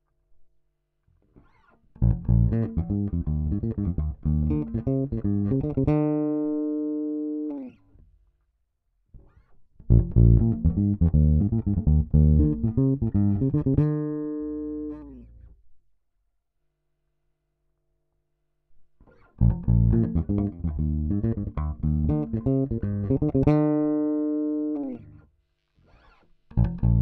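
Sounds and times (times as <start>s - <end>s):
plucked electric bass: 2.0s - 6.9s, 9.8s - 15.3s, 19.4s - 25.0s, 26.6s - 27.0s.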